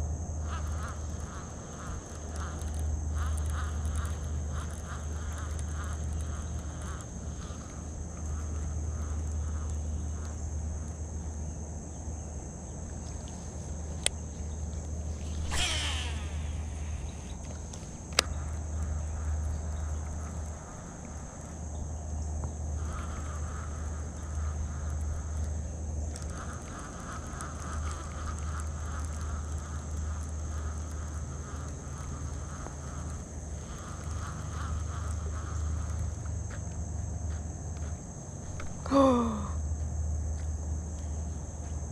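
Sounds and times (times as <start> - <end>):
constant low rumble: 0.0 - 41.9
high insect drone: 0.0 - 41.9
steady high-pitched whine: 0.0 - 41.9
fishing reel being cranked: 15.2 - 17.4.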